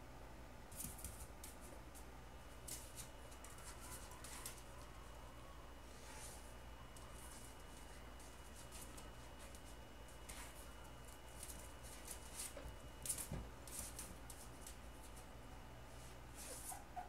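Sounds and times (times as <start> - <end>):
puppy claws pattering on tile: 0.7 - 5.1, 6.9 - 15.3.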